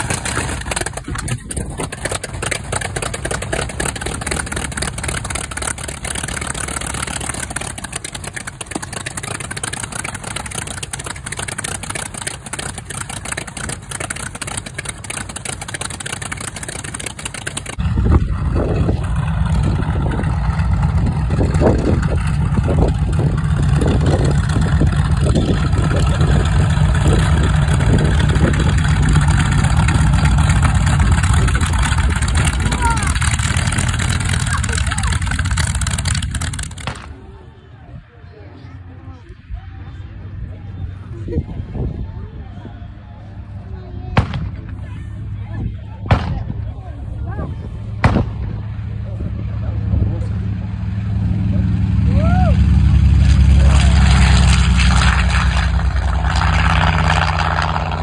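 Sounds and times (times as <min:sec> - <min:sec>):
radial engine running: 0:00.0 - 0:44.0, 0:46.6 - 0:58.0.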